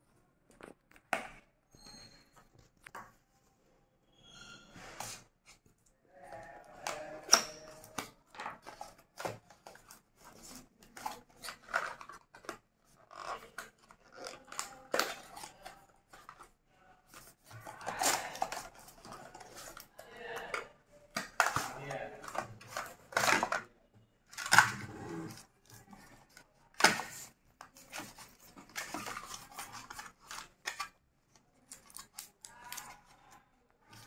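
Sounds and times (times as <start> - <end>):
cardboard rustling and scraping: 24.4 - 30.9.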